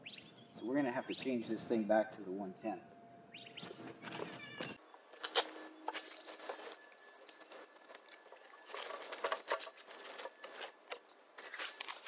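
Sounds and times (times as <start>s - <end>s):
fabric cover and cable rustling: 5.1s - 12.0s.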